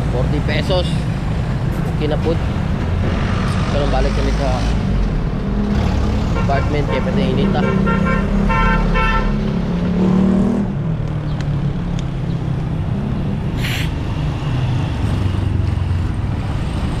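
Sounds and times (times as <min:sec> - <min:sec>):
vehicle engines in traffic: 0:00.0 - 0:17.0
short hiss: 0:13.6 - 0:13.9.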